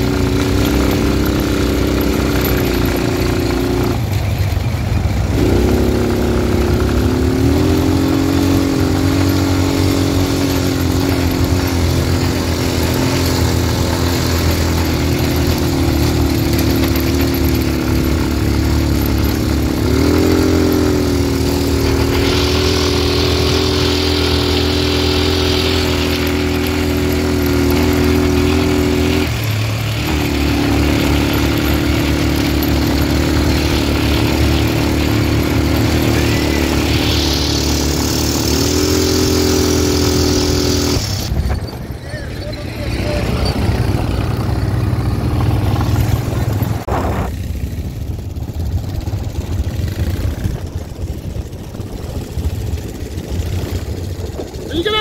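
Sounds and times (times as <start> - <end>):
quad bike engine running: 0.0 - 55.0.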